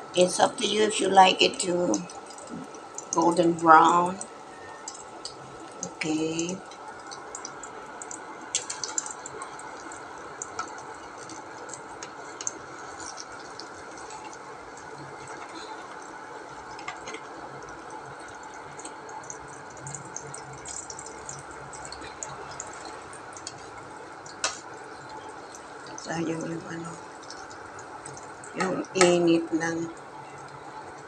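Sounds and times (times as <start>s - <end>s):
egg sizzling in hot oil: 1.9s - 3.2s, 4.2s - 26.1s, 27.0s - 28.6s.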